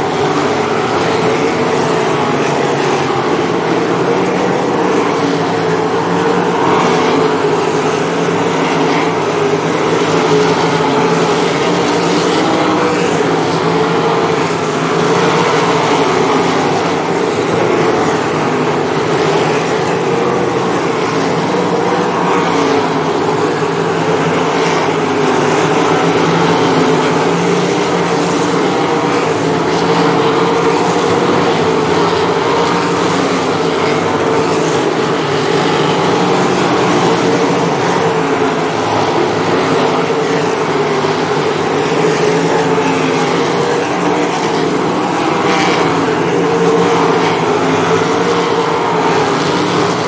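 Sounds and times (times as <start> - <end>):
race car engines roaring: 0.0 - 50.0.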